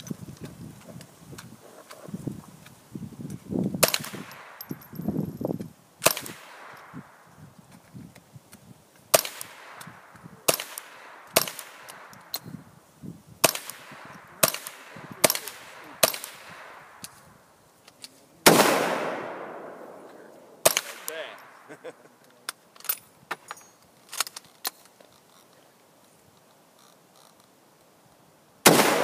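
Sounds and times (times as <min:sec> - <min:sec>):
rifle shots with echo: 0:03.8 - 0:04.8, 0:06.0 - 0:07.2, 0:09.1 - 0:12.3, 0:13.4 - 0:17.0, 0:18.4 - 0:21.8, 0:28.6 - 0:29.0.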